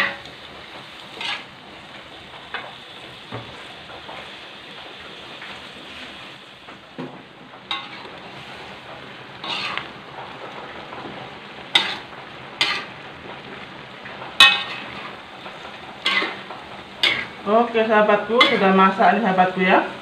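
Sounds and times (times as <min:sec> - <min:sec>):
food sizzling in wok: 0:00.0 - 0:20.0
metal spatula clanging on wok: 0:07.7 - 0:08.1, 0:11.8 - 0:12.0, 0:14.4 - 0:15.1, 0:16.0 - 0:16.4, 0:17.0 - 0:17.4, 0:18.1 - 0:19.0.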